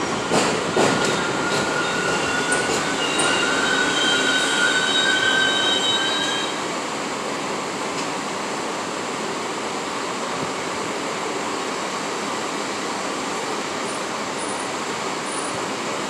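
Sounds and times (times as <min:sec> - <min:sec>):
train brakes squealing: 0:00.0 - 0:06.6
train rumble: 0:00.0 - 0:16.0.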